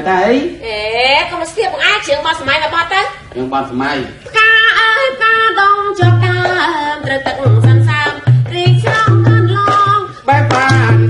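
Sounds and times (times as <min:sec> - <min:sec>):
person singing: 0:04.4 - 0:11.0
drum beating steady rhythm: 0:05.6 - 0:11.0.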